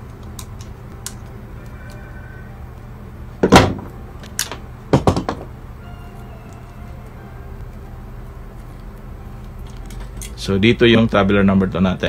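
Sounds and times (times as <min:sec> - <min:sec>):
loud knock: 0:03.4 - 0:03.9, 0:04.9 - 0:05.5
clattering knocks: 0:03.4 - 0:05.6.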